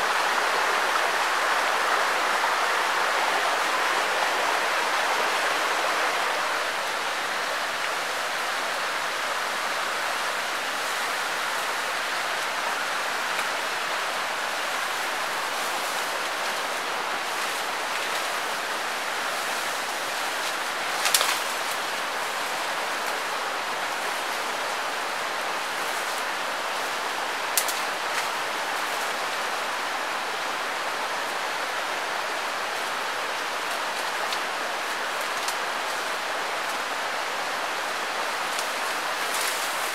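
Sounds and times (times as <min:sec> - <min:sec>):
stream rushing: 0:00.0 - 0:39.9.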